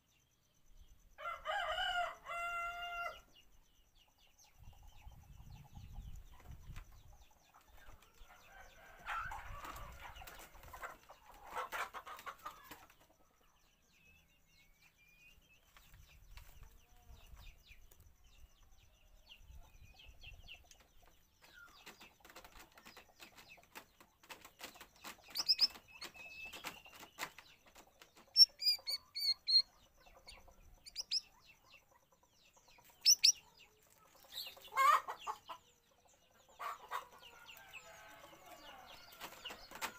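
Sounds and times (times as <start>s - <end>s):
chickens clucking: 4.6s - 13.5s, 19.4s - 39.9s
sharp bird chirps: 24.6s - 31.8s, 32.7s - 35.4s.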